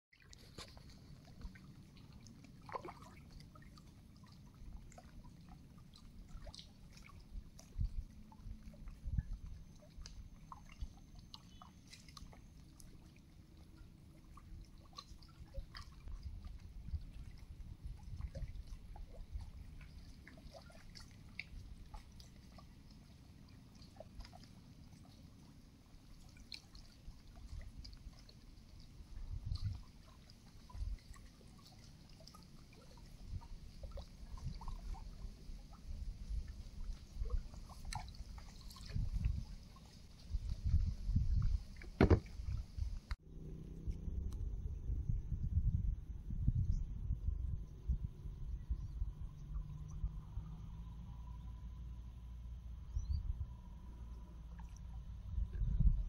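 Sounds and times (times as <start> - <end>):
water trickling and dripping: 0.1 - 44.4, 46.5 - 56.0
low steady rumble: 0.3 - 56.0
steady low rumble: 40.4 - 56.0.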